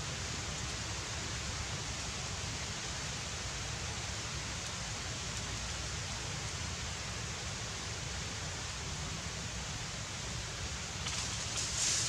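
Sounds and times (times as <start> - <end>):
rushing hiss: 11.0 - 12.0.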